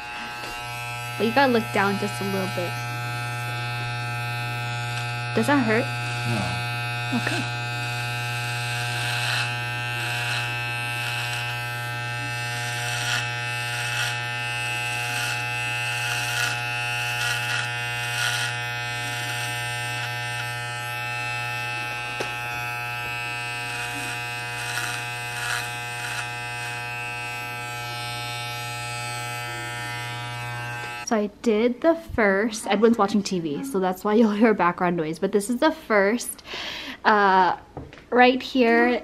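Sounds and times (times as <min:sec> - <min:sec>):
clipper blade cutting hair: 0:00.0 - 0:31.1
electric hair clippers buzzing: 0:00.0 - 0:31.1.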